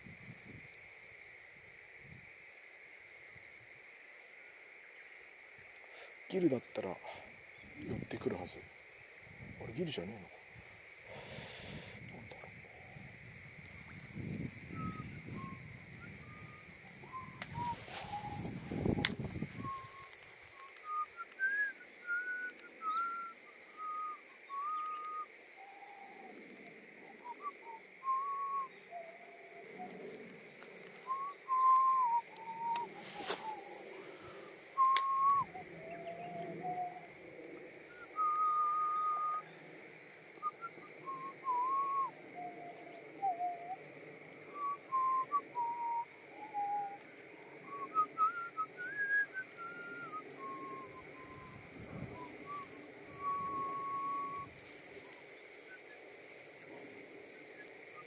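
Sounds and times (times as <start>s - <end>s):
person whistling slow tune: 14.7s - 20.1s, 20.8s - 25.3s, 27.2s - 29.1s, 31.1s - 33.6s, 34.8s - 36.0s, 38.0s - 39.4s, 40.4s - 42.5s, 44.6s - 47.0s, 47.6s - 51.6s, 52.2s - 54.5s.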